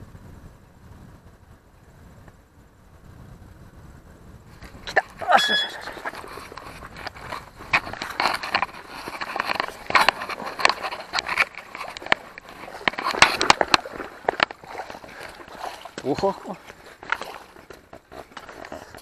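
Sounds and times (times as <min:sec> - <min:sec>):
high chirp: 0:05.2 - 0:06.2
footsteps through dry grass: 0:05.7 - 0:19.0
clothing rustling: 0:05.8 - 0:19.0.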